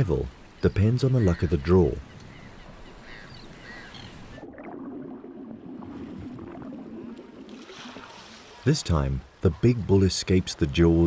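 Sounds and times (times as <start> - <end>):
sea water washing and splashing: 3.6 - 9.4.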